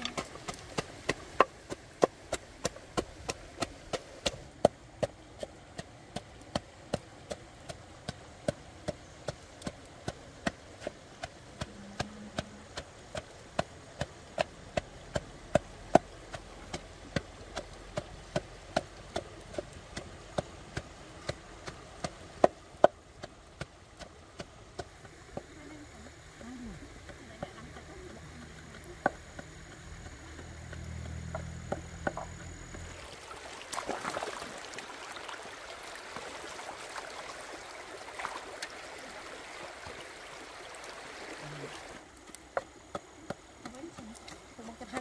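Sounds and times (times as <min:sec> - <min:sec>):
pestle pounding in wooden mortar: 0:00.0 - 0:25.6, 0:26.4 - 0:33.0, 0:42.3 - 0:45.0.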